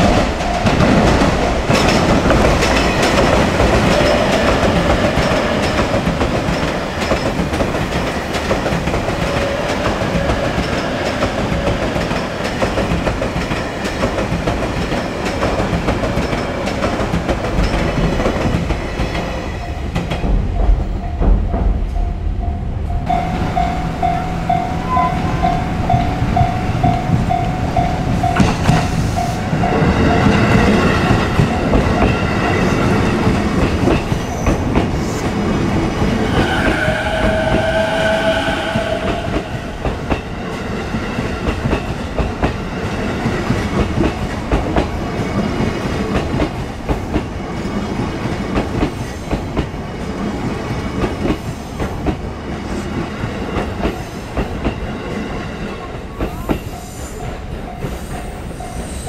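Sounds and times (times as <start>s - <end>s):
electric train passing: 0.0s - 59.0s
short repeating tone: 22.1s - 28.9s.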